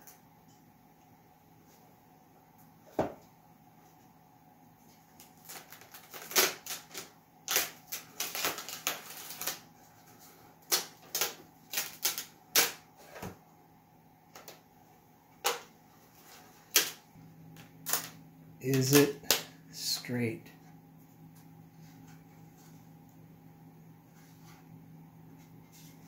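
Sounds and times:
wood cracking and snapping: 0:05.2 - 0:09.6, 0:10.6 - 0:12.8.

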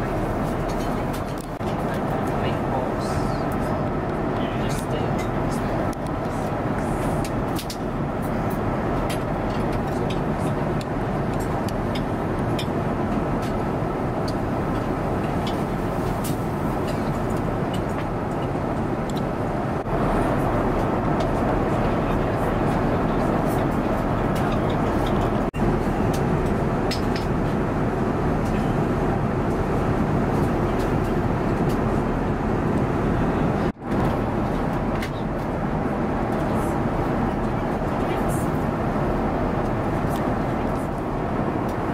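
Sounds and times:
airplane cabin drone: 0:00.0 - 0:41.9.

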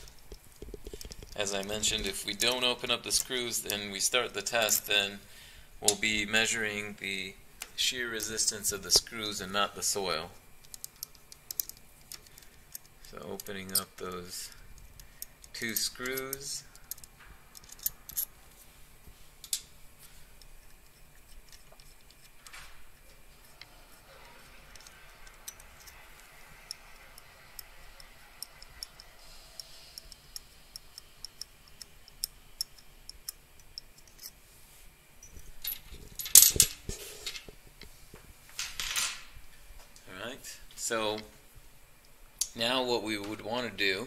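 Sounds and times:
metallic ticks of screws turning: 0:10.6 - 0:18.3, 0:24.7 - 0:26.0, 0:28.4 - 0:34.4.

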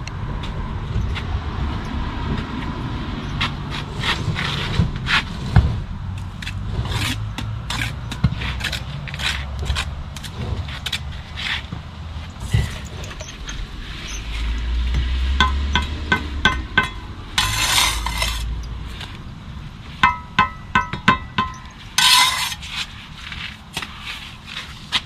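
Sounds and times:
trowel scraping and tapping mortar: 0:06.2 - 0:19.2, 0:20.0 - 0:25.0.

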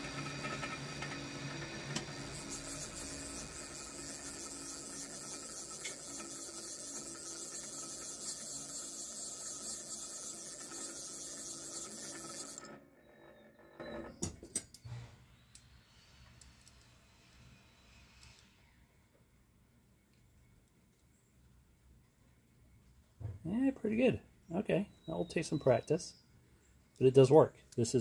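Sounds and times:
milling spindle running: 0:00.0 - 0:13.5.

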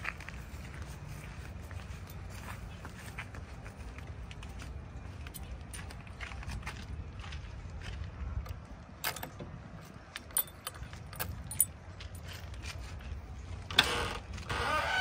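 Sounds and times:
keys jangling: 0:09.0 - 0:09.4, 0:10.1 - 0:12.4.

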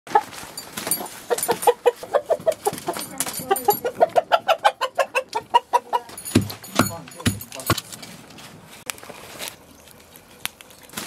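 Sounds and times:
chicken clucking: 0:01.0 - 0:06.2.

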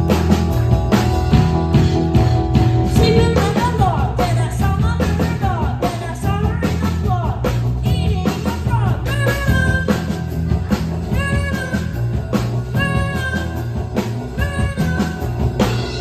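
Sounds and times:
rock band playing: 0:00.0 - 0:16.0
boy singing into microphone: 0:02.9 - 0:10.3.

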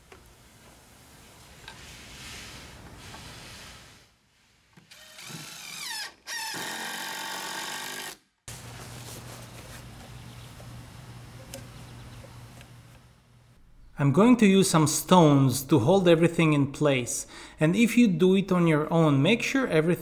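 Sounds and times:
impact driver driving screws: 0:04.8 - 0:08.2
steady low hum: 0:08.5 - 0:14.2.

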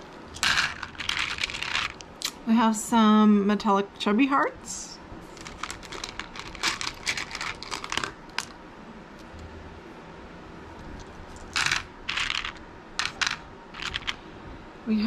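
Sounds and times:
beads clattering: 0:00.0 - 0:02.0, 0:05.4 - 0:08.5, 0:11.4 - 0:14.2
beads rattling in a basket: 0:00.0 - 0:02.0, 0:05.4 - 0:08.5, 0:11.4 - 0:14.2.

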